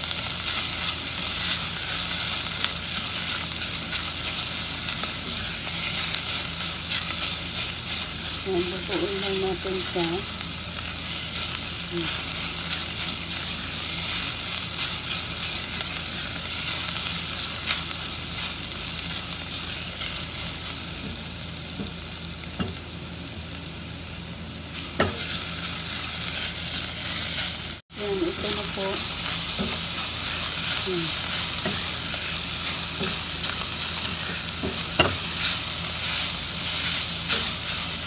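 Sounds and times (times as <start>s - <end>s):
vegetables sizzling in oil: 0.0s - 38.0s
spatula scraping and tapping pan: 34.2s - 35.5s.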